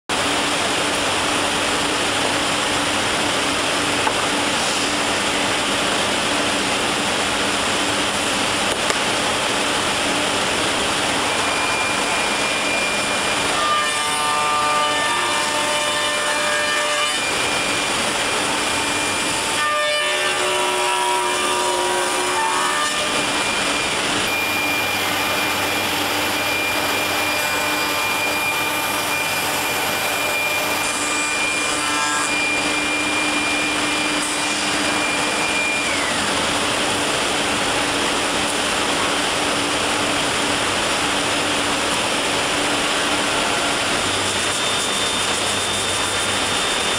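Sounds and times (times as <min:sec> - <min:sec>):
steady whining tones: 0:00.1 - 0:46.9
router cutting wood: 0:10.6 - 0:39.1, 0:41.1 - 0:46.9.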